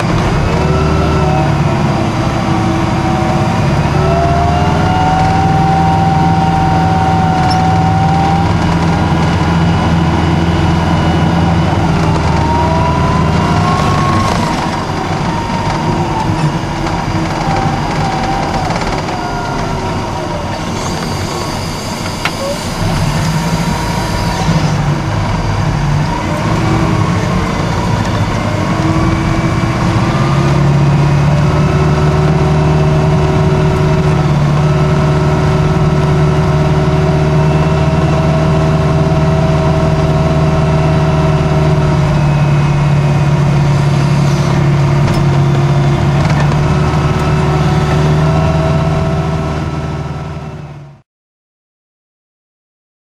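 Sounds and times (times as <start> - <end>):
thin whining tones: 0.0 - 49.0
diesel engine drone: 0.0 - 51.0.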